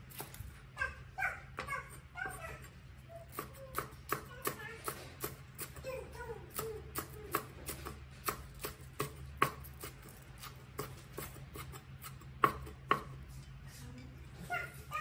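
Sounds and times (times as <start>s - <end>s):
cleaver chopping on wooden board: 6.5s - 13.2s.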